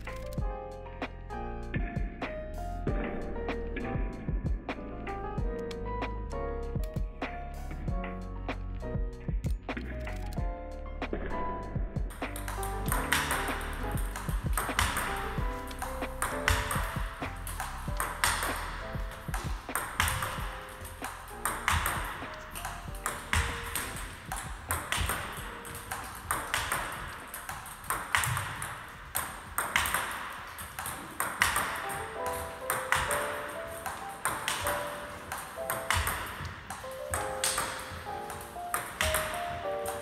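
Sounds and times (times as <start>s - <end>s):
background music: 0.0s - 40.0s
table tennis ball clicks: 12.2s - 40.0s.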